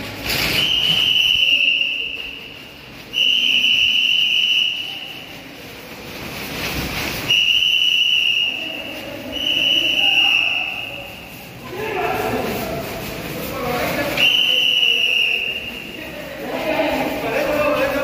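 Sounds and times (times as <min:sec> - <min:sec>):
whistle blasts: 0:00.4 - 0:05.3, 0:07.2 - 0:11.3, 0:14.2 - 0:15.9.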